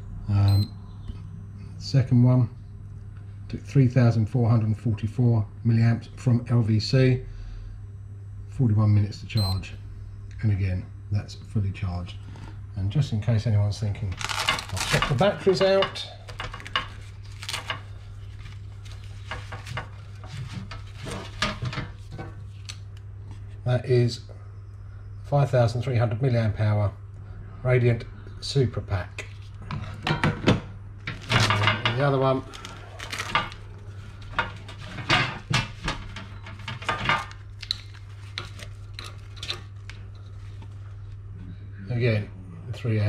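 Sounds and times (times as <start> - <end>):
steady low hum: 0.0 - 43.0
hands handling battery and wires: 14.2 - 15.3.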